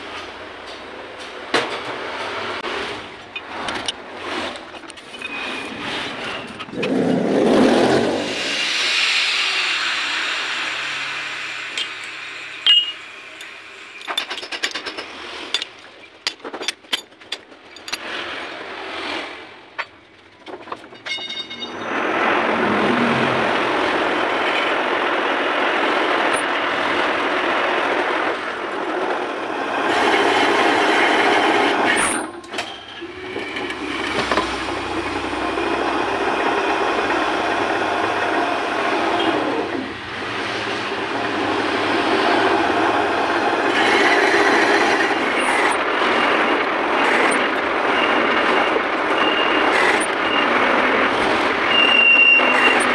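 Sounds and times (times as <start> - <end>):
tool clanking in tool post: 12.7 - 13.0, 14.0 - 18.2, 19.8 - 21.8.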